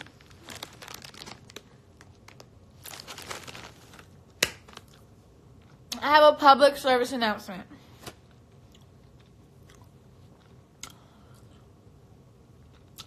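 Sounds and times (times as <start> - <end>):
plastic candy bag crinkling: 0.0 - 5.2.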